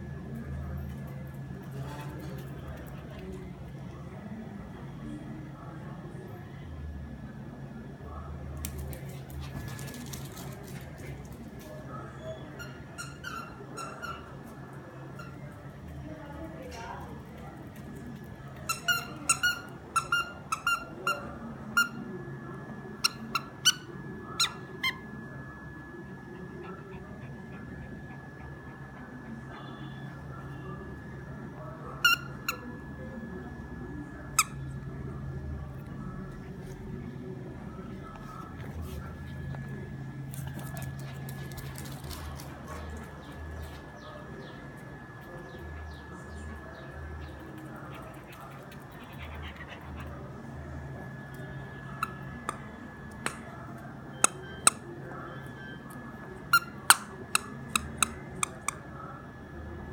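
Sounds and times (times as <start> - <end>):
squeaky toy squeaking: 12.6 - 14.4.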